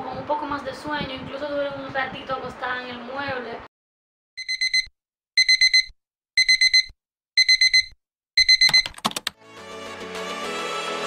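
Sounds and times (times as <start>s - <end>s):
electronic alarm beeping: 4.4s - 9.0s
music: 9.4s - 11.0s.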